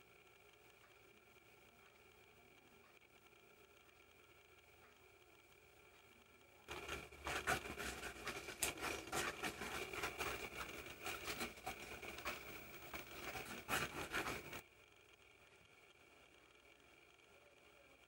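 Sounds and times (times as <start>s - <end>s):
stick scraping in enamel bowl: 6.7s - 14.6s.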